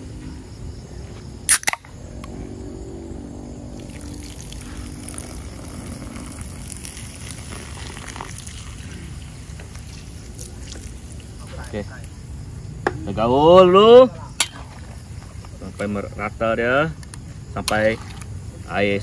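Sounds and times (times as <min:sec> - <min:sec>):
can cracked open with hiss: 0:01.5 - 0:01.8
soda pouring into wok: 0:03.8 - 0:11.3.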